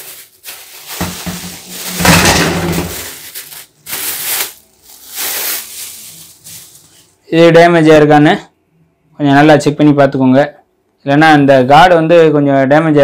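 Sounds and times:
plastic wrapping crinkling: 0.0s - 7.2s.

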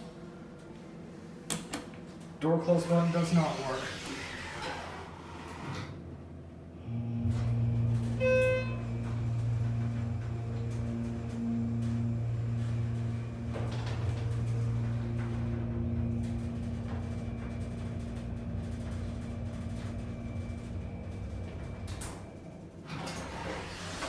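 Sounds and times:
elevator hum: 0.0s - 24.0s
elevator stopping click: 6.9s - 24.0s.

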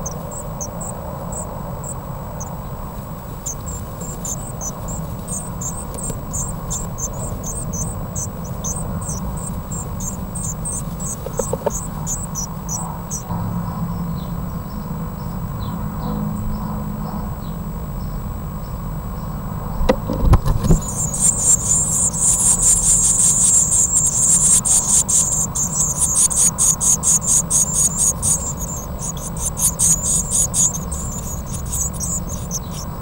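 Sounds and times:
nestlings cheeping: 0.0s - 13.3s, 20.5s - 33.0s.

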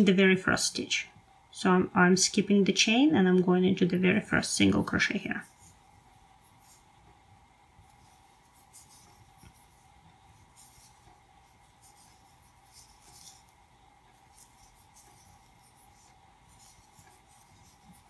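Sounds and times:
faint steady hum: 0.0s - 18.0s
crochet hook rustling yarn: 3.8s - 18.0s.

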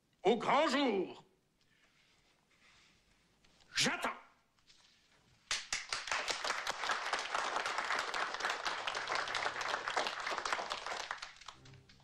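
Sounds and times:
people clapping: 5.4s - 12.0s.

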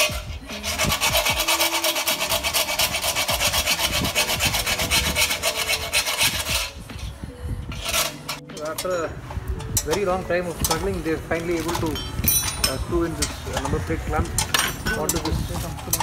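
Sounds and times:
hand file rasping on metal: 0.0s - 7.1s, 7.7s - 8.4s.

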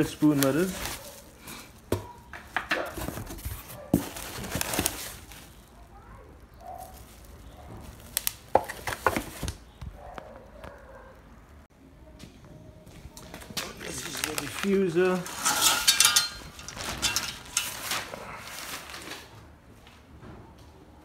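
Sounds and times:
bubble wrap crinkling: 0.0s - 2.0s, 2.8s - 10.0s, 13.0s - 19.3s.

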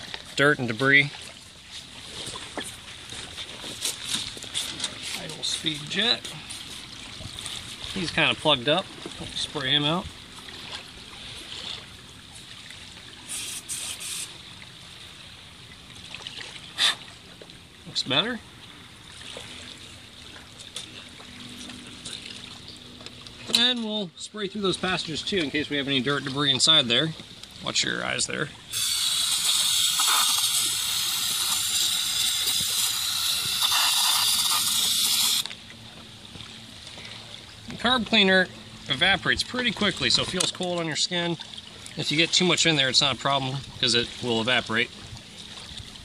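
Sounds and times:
aerosol spray hissing: 13.3s - 14.3s, 28.8s - 35.4s.

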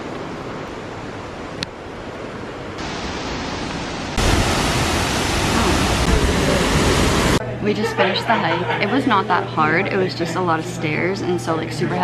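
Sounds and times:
waterfall roaring: 0.0s - 7.4s.

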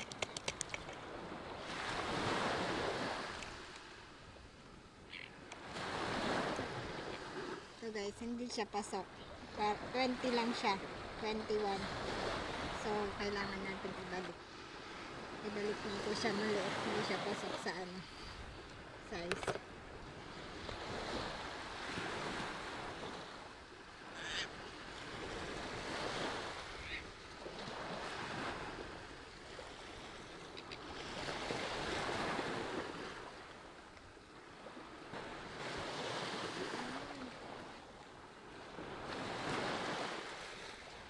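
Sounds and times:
small waves breaking on beach: 0.0s - 41.0s.

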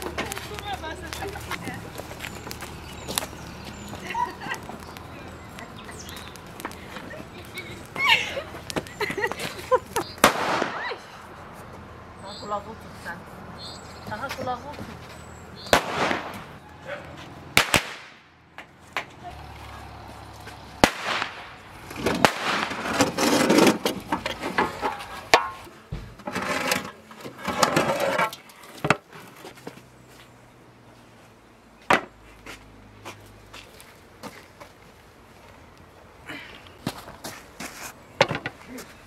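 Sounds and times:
firecrackers banging: 0.0s - 11.2s, 15.6s - 16.6s, 17.5s - 18.3s, 20.7s - 26.6s.

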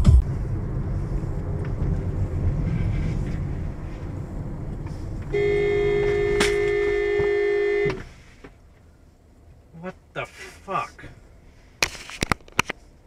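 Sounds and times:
car road and engine noise: 0.0s - 13.0s
car horn blast: 5.3s - 8.1s.

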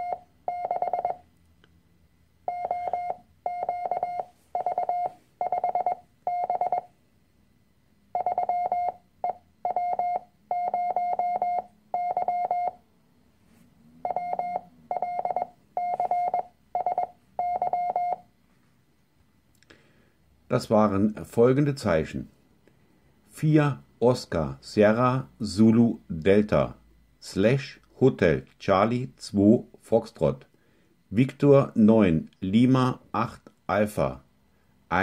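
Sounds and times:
morse code tone: 0.0s - 1.2s, 2.5s - 6.9s, 8.1s - 12.8s, 14.0s - 18.3s.

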